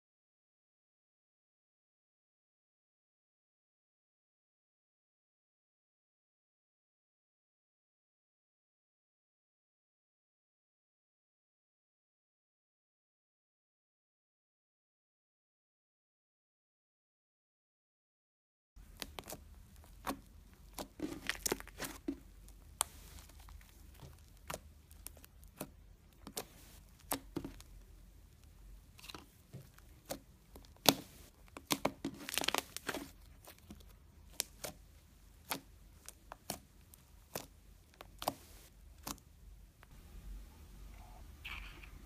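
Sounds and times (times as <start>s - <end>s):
sticky slime pops and crackles: 18.8s - 27.8s, 28.4s - 39.3s.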